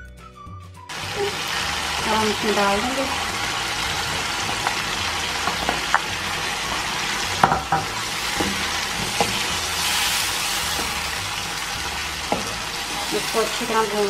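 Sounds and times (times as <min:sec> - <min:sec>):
chicken sizzling in hot oil: 0:00.9 - 0:14.0
ladle knocking and scraping pan: 0:06.7 - 0:09.7.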